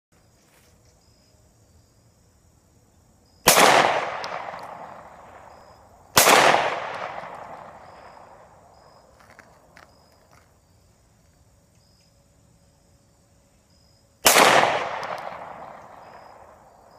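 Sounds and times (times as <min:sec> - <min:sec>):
pistol shots with echo: 0:03.4 - 0:09.0, 0:14.2 - 0:16.7.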